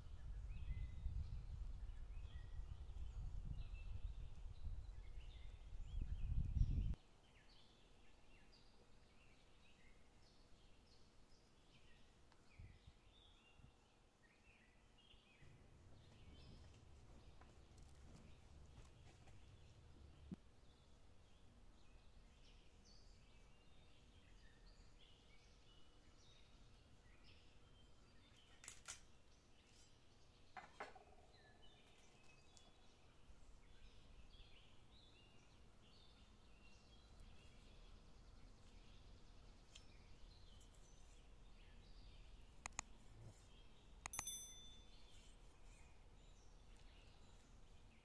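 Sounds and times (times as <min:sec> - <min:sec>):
faint bird chirps: 0:29.6 - 0:48.0.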